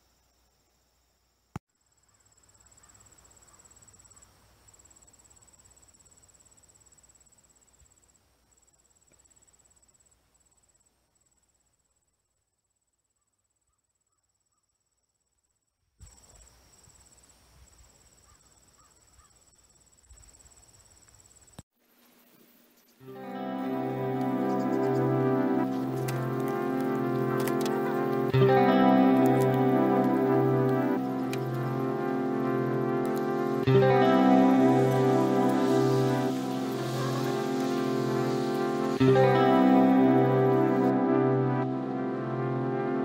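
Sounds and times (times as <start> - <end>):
insects trilling: 16.0 - 21.6, 23.6 - 40.8.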